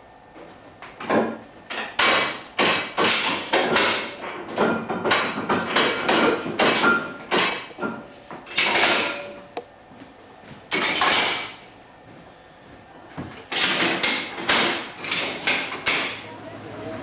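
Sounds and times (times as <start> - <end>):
hand wheel gearing clattering: 13.5 - 16.3.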